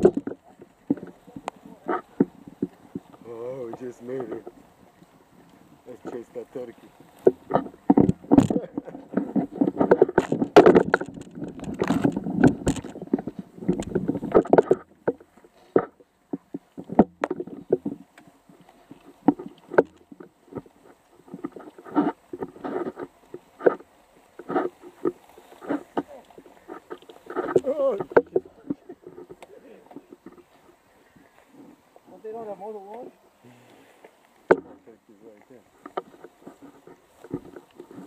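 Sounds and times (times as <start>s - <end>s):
bicycle knocking and rattling: 0.0s - 4.9s, 5.6s - 32.4s
grass swishing against bicycle: 0.4s - 10.4s, 17.6s - 38.0s.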